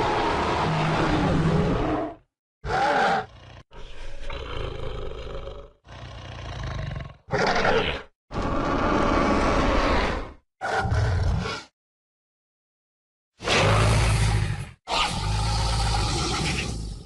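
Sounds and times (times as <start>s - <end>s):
monster roaring and growling: 0.0s - 11.7s, 13.4s - 17.0s.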